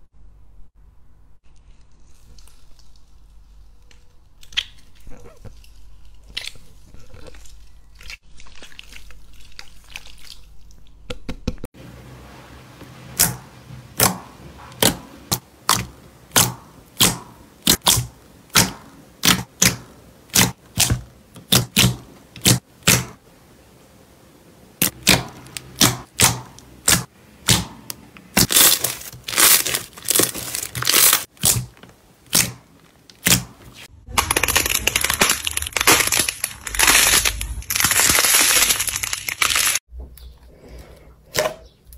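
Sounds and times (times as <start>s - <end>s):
crunchy slime crackling: 28.3s - 39.8s.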